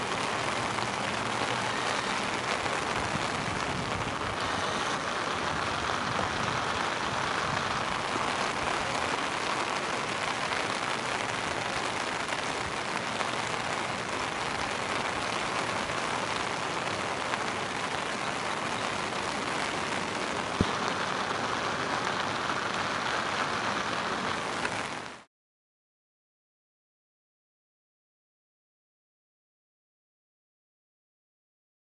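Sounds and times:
heavy rain on a river: 0.0s - 25.3s.

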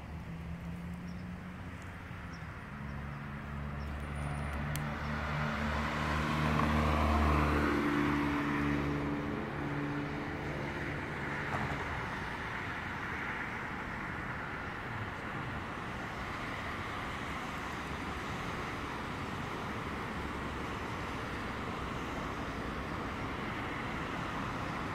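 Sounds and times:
car driving past: 2.7s - 12.4s.

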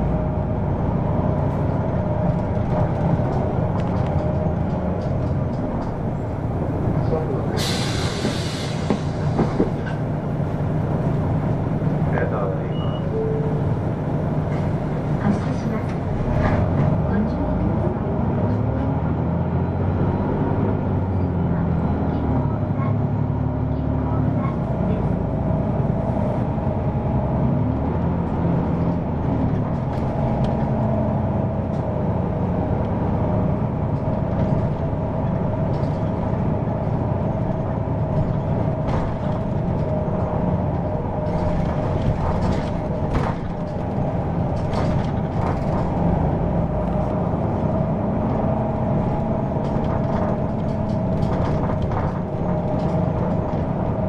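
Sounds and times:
bus engine and road noise: 0.0s - 54.0s
rattles and knocks: 2.3s - 6.8s, 38.0s - 47.0s, 48.2s - 54.0s.

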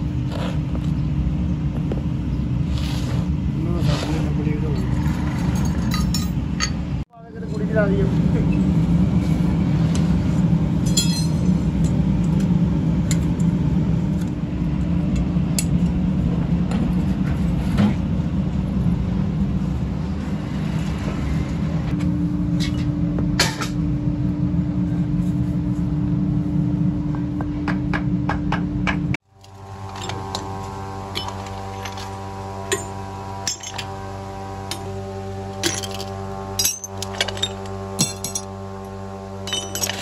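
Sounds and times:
workshop machinery drone: 0.0s - 40.0s.

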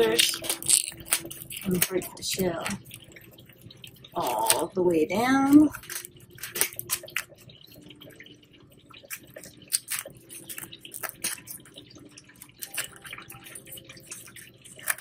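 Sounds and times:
scissors cutting lobster shell: 0.0s - 3.1s, 5.4s - 7.4s, 9.0s - 11.8s, 12.4s - 15.0s.

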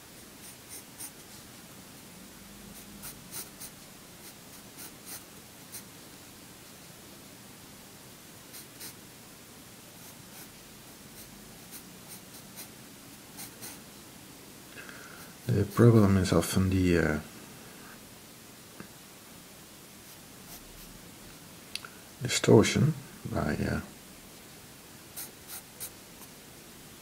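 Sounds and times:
pencil sketching on paper: 0.4s - 1.2s, 2.7s - 5.9s, 8.5s - 9.0s, 10.0s - 10.5s, 11.2s - 12.7s, 13.4s - 13.8s, 25.2s - 26.3s.

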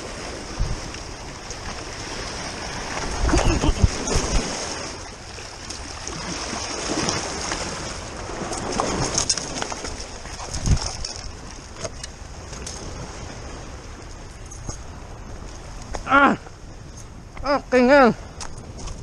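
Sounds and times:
sea water splashing on rocks: 0.0s - 11.7s.

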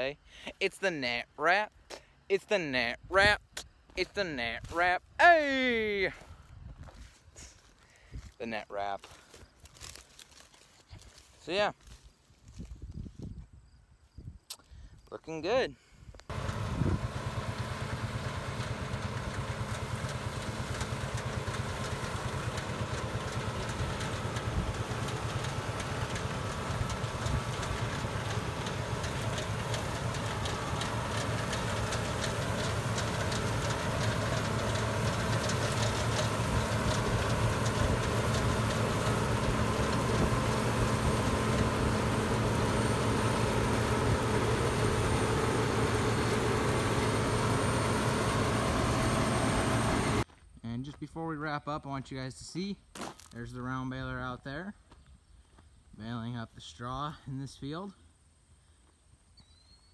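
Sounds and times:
combine harvester engine and threshing: 0.0s - 13.0s, 16.1s - 50.3s.

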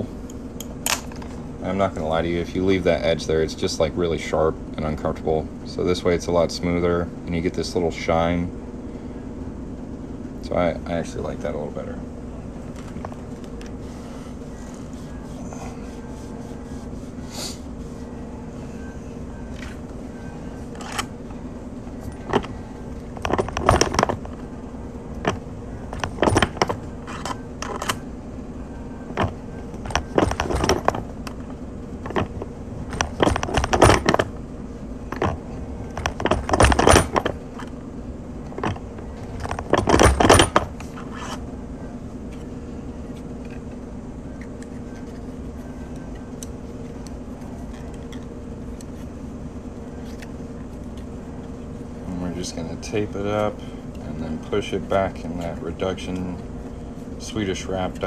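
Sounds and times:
steady low hum: 0.0s - 58.0s
metal tools clinking and rattling: 25.2s - 28.0s, 29.2s - 31.1s, 32.0s - 34.3s, 35.1s - 37.4s, 38.6s - 41.4s.

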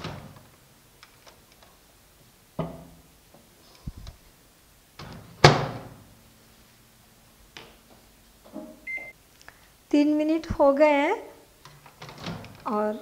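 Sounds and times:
microwave door slam: 5.0s - 6.0s.

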